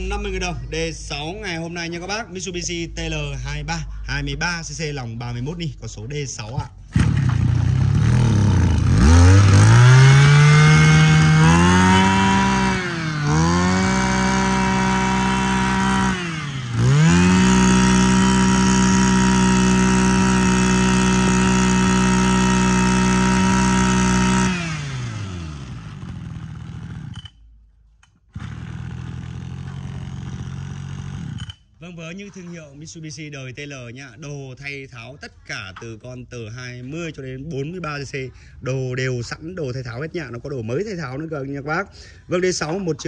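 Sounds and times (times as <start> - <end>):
brush cutter engine revving: 6.9 - 27.4, 28.3 - 31.6.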